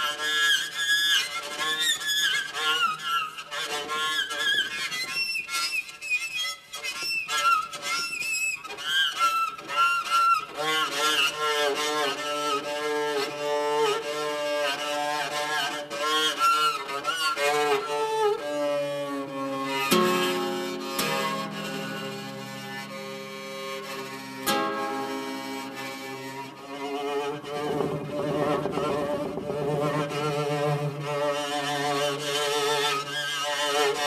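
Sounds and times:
bowed strings sliding wavering notes: 0:07.1 - 0:34.0.

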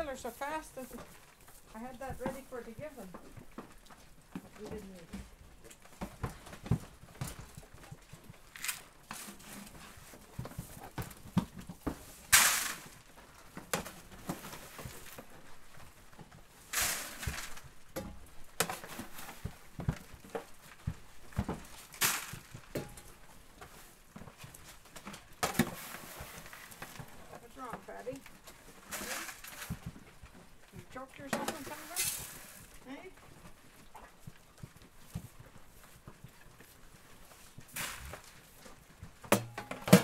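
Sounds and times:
plastic bucket knocks and clicks: 0:39.2 - 0:40.0.

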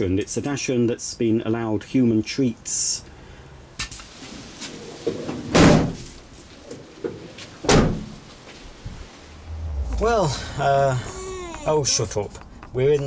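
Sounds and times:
van doors slamming: 0:05.3 - 0:06.2, 0:07.6 - 0:08.2.

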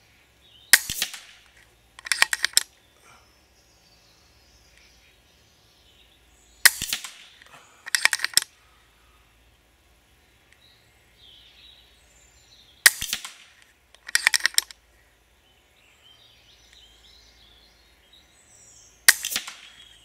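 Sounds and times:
air rifle shot: 0:00.7 - 0:02.6, 0:06.6 - 0:08.5, 0:12.8 - 0:14.7, 0:19.1 - 0:20.0
metallic clicks of rifle lever: 0:00.7 - 0:02.8, 0:06.6 - 0:08.6, 0:12.8 - 0:14.8, 0:19.1 - 0:20.0.

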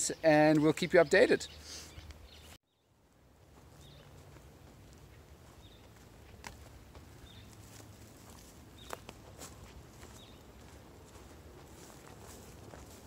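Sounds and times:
bird chirping: 0:00.0 - 0:02.9, 0:10.1 - 0:10.7
footsteps on dry ground: 0:03.3 - 0:13.0.

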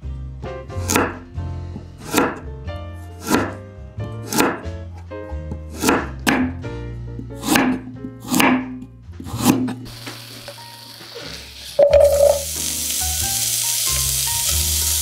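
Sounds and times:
background music: 0:00.0 - 0:15.0
knife chopping on cutting board: 0:00.7 - 0:01.3, 0:02.0 - 0:02.5, 0:03.2 - 0:06.6, 0:07.4 - 0:09.8.

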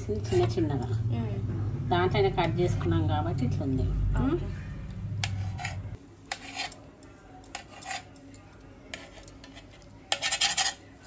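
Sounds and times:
knife scraping a steel plate: 0:05.2 - 0:06.9, 0:07.5 - 0:08.2, 0:08.9 - 0:11.0.

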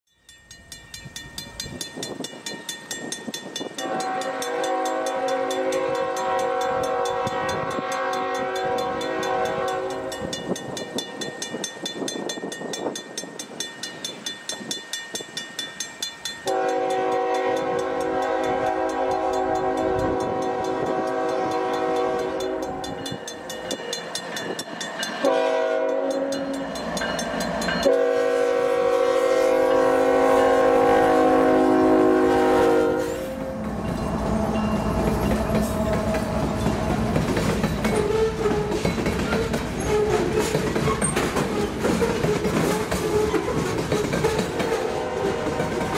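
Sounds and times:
rumble of oncoming train: 0:00.2 - 0:45.9
train air horn blasts: 0:03.8 - 0:10.4, 0:16.4 - 0:23.2, 0:25.2 - 0:26.6, 0:27.8 - 0:37.1, 0:37.9 - 0:38.8, 0:44.6 - 0:45.9.

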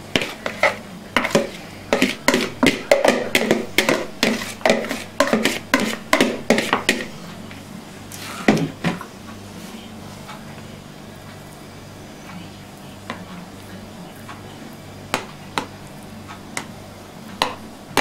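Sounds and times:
eggs scraping on a hand grater: 0:04.2 - 0:06.8.

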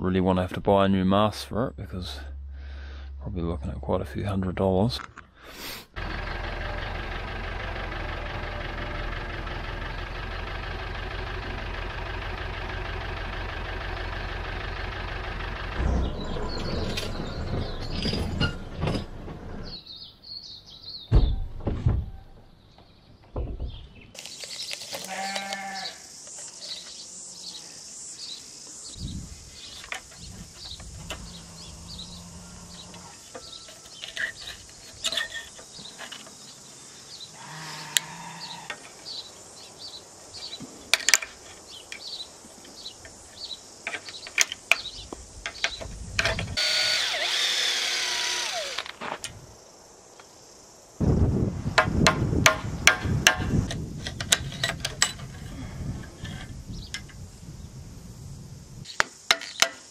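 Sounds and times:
tractor engine running: 0:06.0 - 0:19.7
heavy clunks: 0:15.6 - 0:19.8, 0:21.1 - 0:24.1
animal calling: 0:31.0 - 0:33.2.

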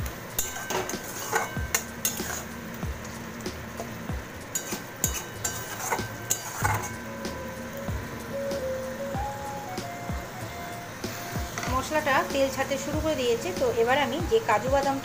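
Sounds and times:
faint sizzle: 0:00.0 - 0:15.0
spatula scraping and knocking on pan: 0:00.4 - 0:02.8, 0:03.5 - 0:07.0.

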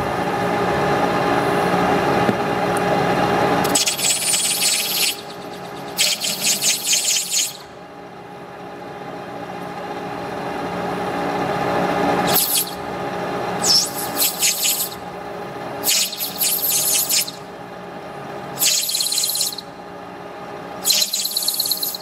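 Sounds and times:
lathe tool squealing: 0:03.7 - 0:07.7, 0:12.3 - 0:12.8, 0:13.6 - 0:15.0, 0:18.6 - 0:19.7, 0:20.9 - 0:22.0.

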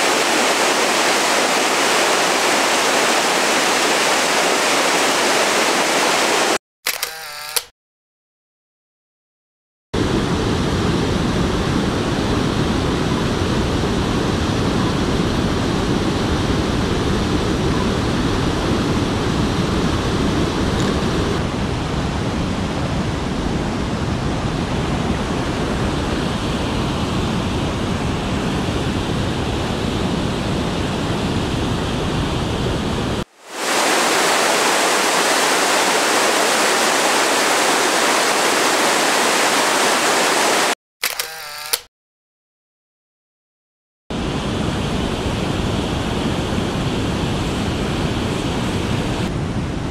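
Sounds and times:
creek rushing over rocks: 0:00.0 - 0:06.6, 0:33.3 - 0:40.8.

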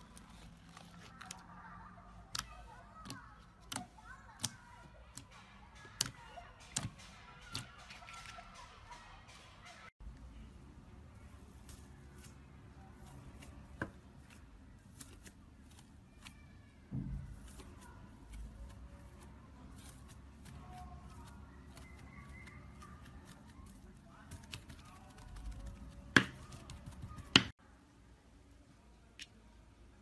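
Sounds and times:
sticky slime crackles: 0:17.3 - 0:27.5.

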